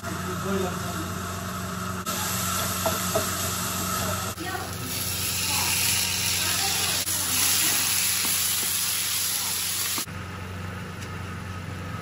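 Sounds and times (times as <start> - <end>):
peas sizzling in hot oil: 2.1 - 10.1.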